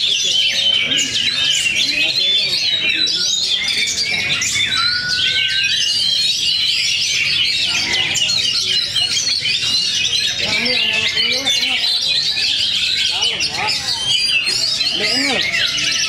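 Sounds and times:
birds singing in chorus: 0.0s - 16.0s
long rising bird whistle: 4.4s - 7.0s.

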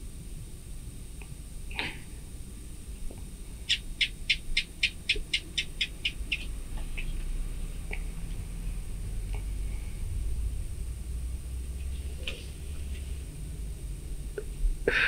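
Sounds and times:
animal chirping call: 3.7s - 7.1s.

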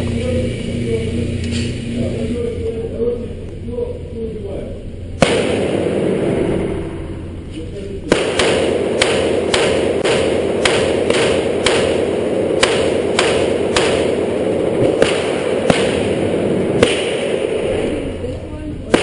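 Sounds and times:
rifle shots: 5.2s - 7.0s, 8.1s - 18.1s.

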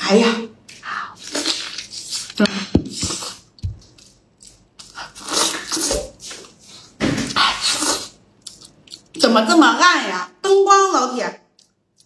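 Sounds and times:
wet chewing of meat: 8.0s - 9.2s, 11.5s - 12.0s.

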